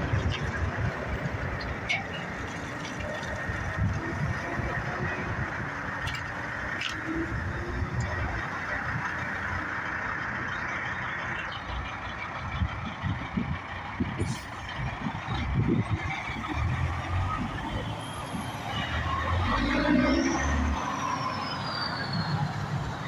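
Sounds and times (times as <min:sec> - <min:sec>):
diesel truck engine running: 0:00.0 - 0:23.0
low traffic rumbles: 0:00.0 - 0:23.0.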